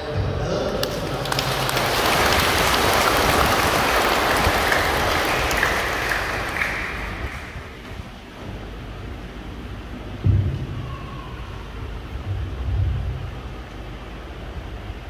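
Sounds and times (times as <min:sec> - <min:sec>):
audience applauding: 0:00.8 - 0:08.2.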